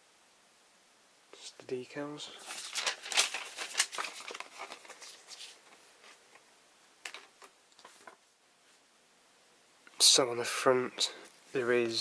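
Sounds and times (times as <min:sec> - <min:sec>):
paper rustling and crinkling: 0:02.3 - 0:06.4.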